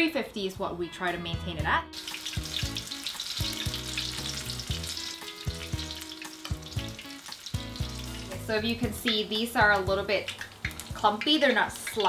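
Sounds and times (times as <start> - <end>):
batter sizzling in oil: 1.9 - 12.0.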